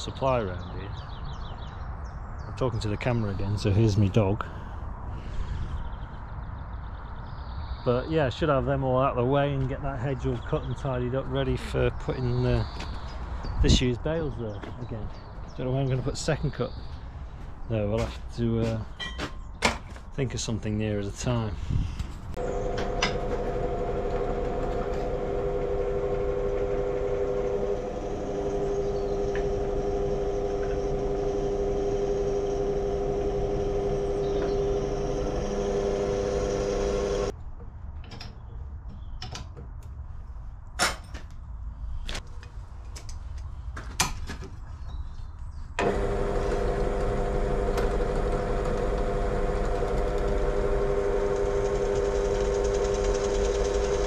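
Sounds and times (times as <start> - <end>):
engine droning: 22.4 - 37.3, 45.8 - 54.0.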